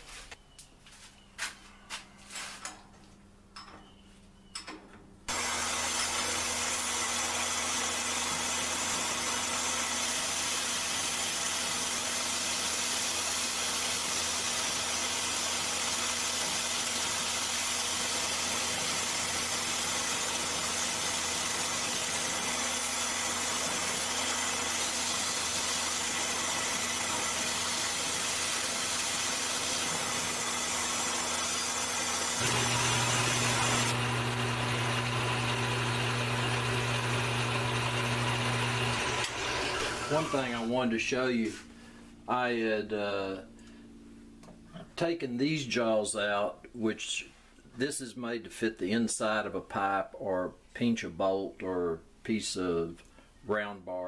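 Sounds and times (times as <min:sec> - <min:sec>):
shop vacuum running: 0:05.3 - 0:42.2.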